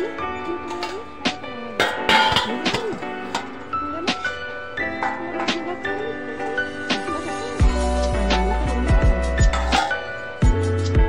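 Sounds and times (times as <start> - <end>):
background music with held tones: 0.0 - 11.0
deep bass line: 7.6 - 9.7.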